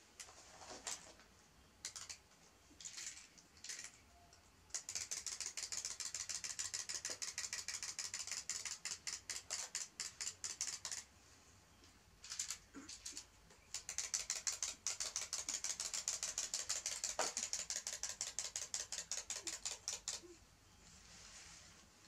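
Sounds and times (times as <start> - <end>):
wind-up toy clicking: 1.8 - 2.2, 2.8 - 4.0, 4.7 - 11.1, 12.2 - 20.4
rustling: 20.7 - 22.0.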